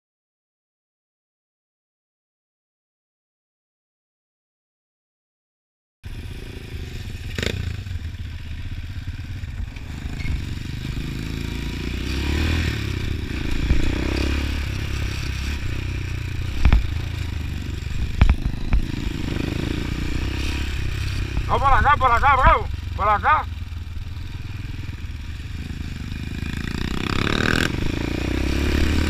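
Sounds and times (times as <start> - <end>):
motorcycle engine running: 6.0 - 29.0.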